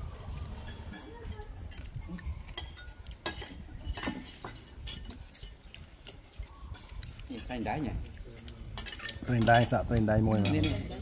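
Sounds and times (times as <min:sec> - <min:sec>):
cutlery clinking on plates: 0:00.6 - 0:06.2, 0:08.7 - 0:11.0.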